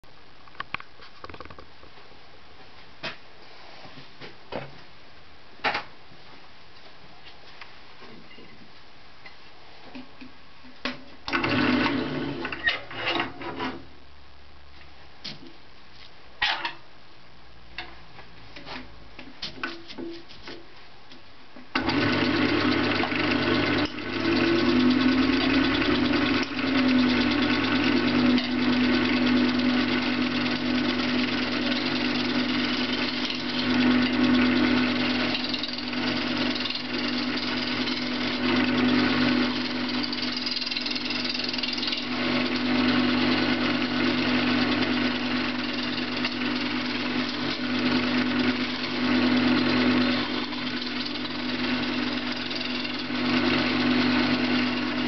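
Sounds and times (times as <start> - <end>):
wood lathe humming: 11.3 - 12.5, 21.8 - 55.0
gouge cutting spinning wood: 21.8 - 55.0.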